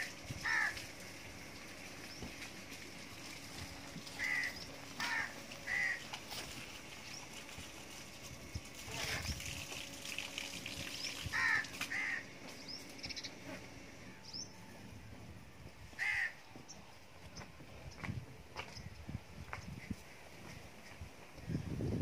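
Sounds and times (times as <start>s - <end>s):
crow cawing: 0.4s - 0.8s, 4.2s - 6.1s, 11.3s - 12.3s, 16.0s - 16.4s.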